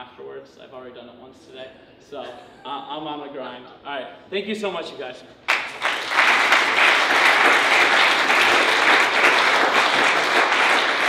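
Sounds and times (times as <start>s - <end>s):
audience applauding: 5.5s - 11.0s.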